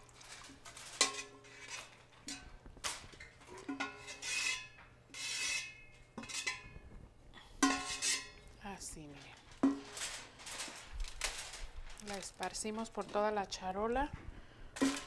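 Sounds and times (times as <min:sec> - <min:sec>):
utensil clinking on metal cookware: 0:00.9 - 0:02.6, 0:03.5 - 0:06.8, 0:07.6 - 0:08.4.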